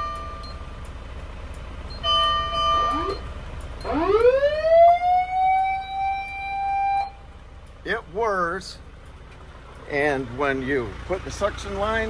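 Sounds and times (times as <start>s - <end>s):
fire truck siren wailing: 2.0s - 7.4s.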